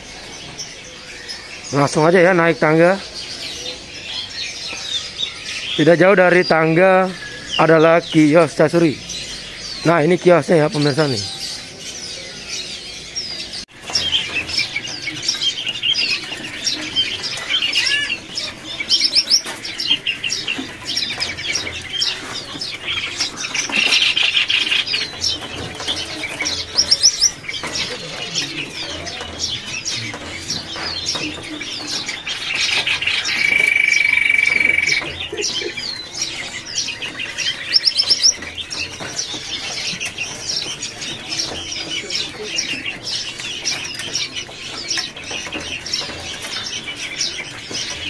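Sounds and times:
songbirds chirping and whistling: 0:00.0 - 0:48.0
bird trilling: 0:26.3 - 0:38.7.

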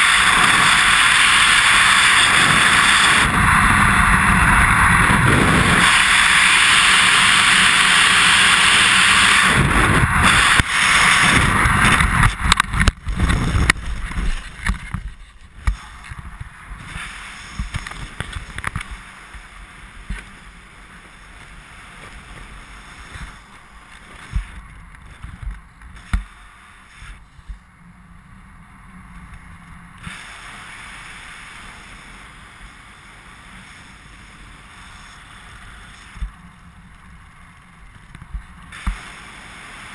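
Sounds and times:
wind rushing over microphone: 0:00.0 - 0:26.4
rustle of air and canopy fabric: 0:09.0 - 0:39.9.

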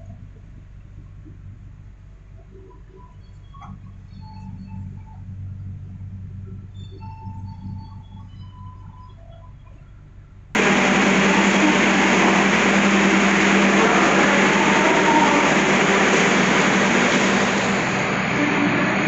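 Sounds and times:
low steady hum: 0:00.0 - 0:19.0
train carriage rushing rumble: 0:10.6 - 0:19.0.

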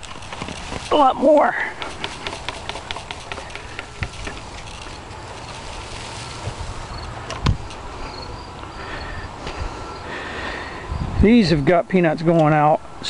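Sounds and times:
dry plants rustling and crackling: 0:00.0 - 0:08.7.

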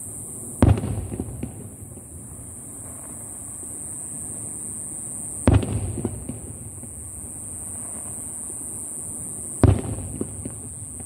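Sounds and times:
firework crackles: 0:00.0 - 0:11.0
steady high hiss: 0:00.0 - 0:11.0
firework shells booming: 0:00.6 - 0:02.2, 0:05.4 - 0:07.2, 0:09.6 - 0:11.0.

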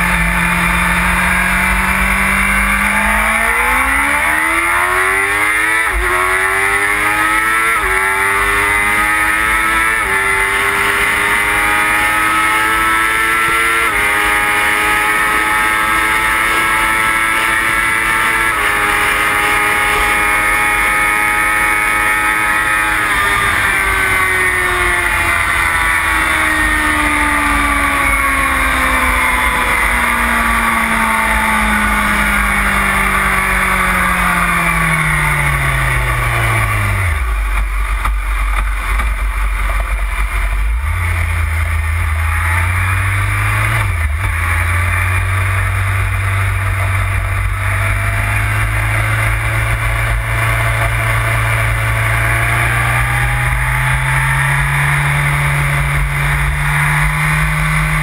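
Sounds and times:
motorcycle engine at high revs: 0:00.0 - 0:58.0.

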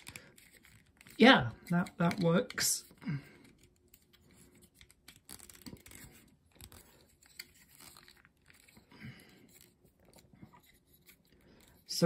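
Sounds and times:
plastic toy parts clicking: 0:00.0 - 0:02.8.

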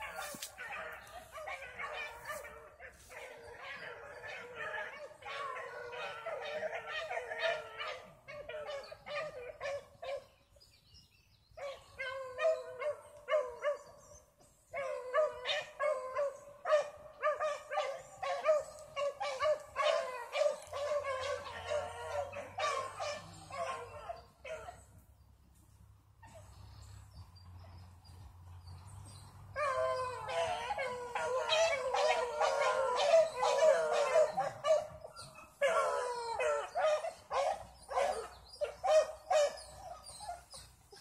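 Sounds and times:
dog barking rapidly: 0:16.2 - 0:24.7.

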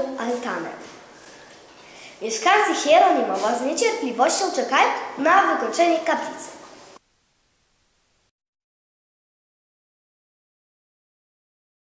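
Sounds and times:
faint hiss: 0:00.0 - 0:08.3.

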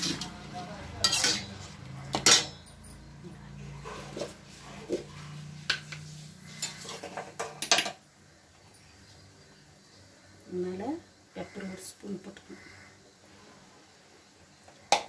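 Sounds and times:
ladle scraping a metal pan: 0:01.0 - 0:02.4.

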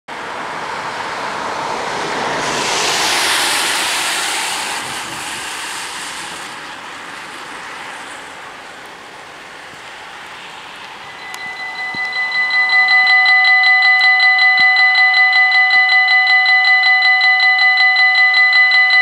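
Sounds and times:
van tyres hissing on wet road: 0:00.2 - 0:11.1
rain hiss: 0:02.1 - 0:11.2.

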